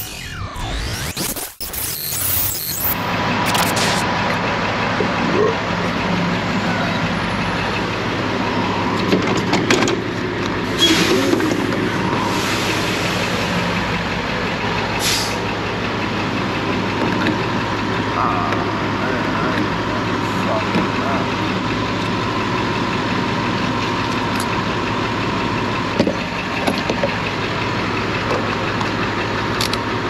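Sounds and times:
short hisses: 15.0 - 15.4.

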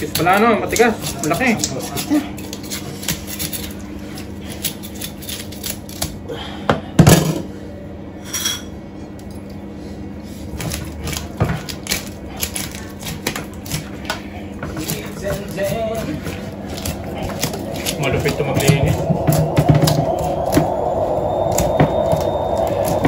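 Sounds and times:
fish scales being scraped: 0.0 - 6.1, 10.5 - 19.0.

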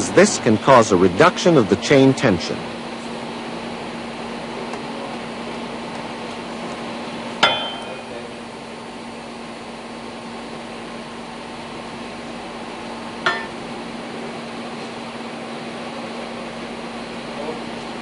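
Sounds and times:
steady hum: 0.0 - 18.0
sharp metallic clinks: 7.4 - 8.1.

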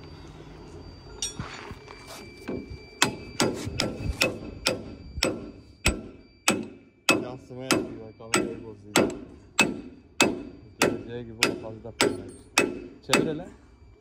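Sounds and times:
hammer striking metal: 2.5 - 13.5.

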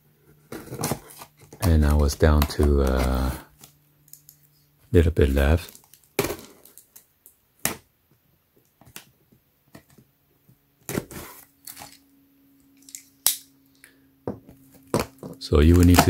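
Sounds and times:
cardboard rustling: 0.3 - 3.7.

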